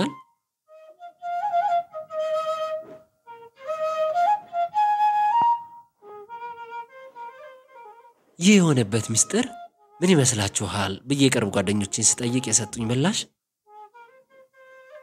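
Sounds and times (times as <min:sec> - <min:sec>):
flute playing slow melody: 0:00.0 - 0:10.4, 0:13.6 - 0:15.0.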